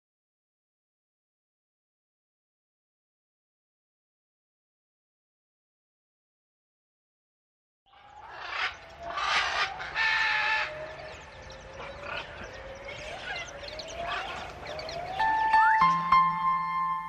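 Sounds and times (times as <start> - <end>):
birds calling: 7.9 - 17.0.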